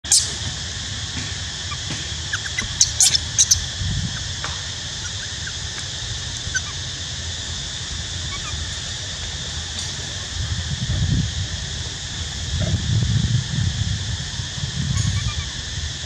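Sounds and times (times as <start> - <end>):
steady background hiss: 0.0 - 16.0
baby monkey squealing cries: 1.6 - 4.3, 4.9 - 6.8, 8.2 - 8.7, 14.9 - 15.6
faint monkey chirps: 1.6 - 4.3, 4.9 - 6.9, 8.2 - 8.7, 14.9 - 15.6.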